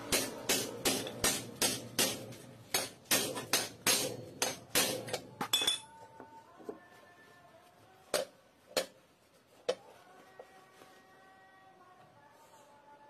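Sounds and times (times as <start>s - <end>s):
hammer striking metal: 0.0s - 5.9s.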